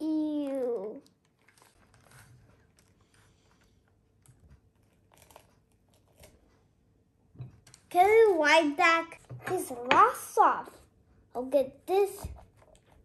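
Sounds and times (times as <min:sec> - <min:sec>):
pumpkin crunching and crinkling: 0:00.0 - 0:06.9.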